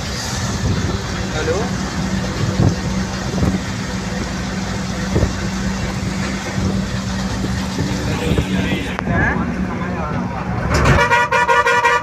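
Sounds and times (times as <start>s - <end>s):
road and wind rumble: 0.0s - 12.0s
truck diesel engine hum: 0.0s - 12.0s.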